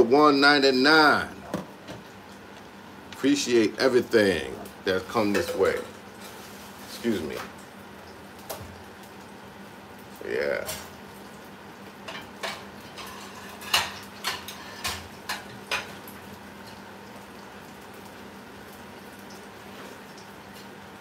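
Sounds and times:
faint steady hum: 0:00.0 - 0:21.0
utensils clinking against pans: 0:05.2 - 0:06.4, 0:12.1 - 0:16.0.

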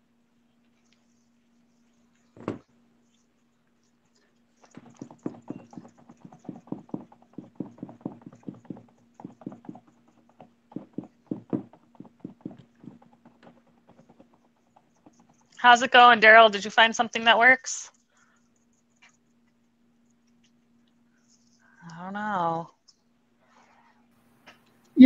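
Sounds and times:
sponge tapping on canvas: 0:04.8 - 0:15.6.

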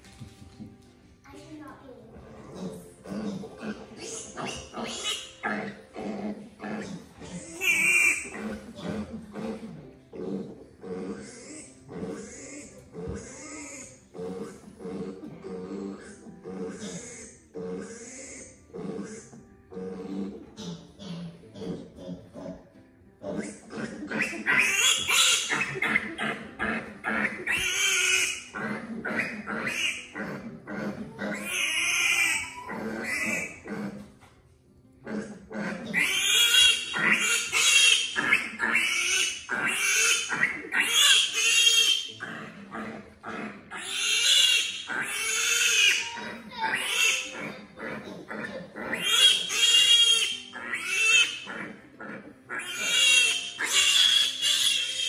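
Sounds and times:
piglet squealing: 0:02.5 - 0:34.1, 0:35.0 - 0:55.0.

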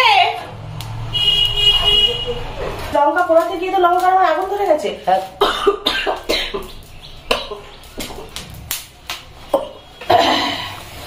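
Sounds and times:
person coughing: 0:05.4 - 0:06.7, 0:09.6 - 0:10.8.

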